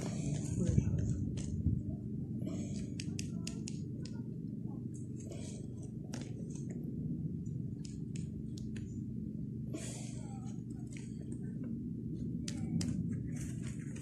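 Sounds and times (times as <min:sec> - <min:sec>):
steady low hum: 0:00.0 - 0:14.0
toy hooves clicking on concrete: 0:02.6 - 0:04.2.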